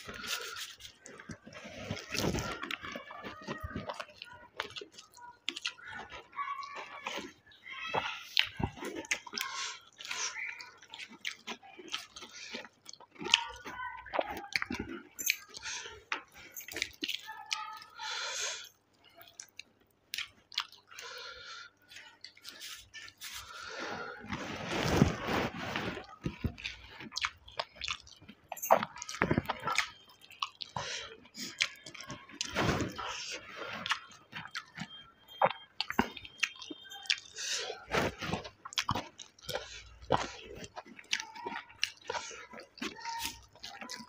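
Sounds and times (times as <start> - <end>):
wet chewing and lip-smacking: 0.0 - 44.0
fingers squelching in food: 19.0 - 44.0.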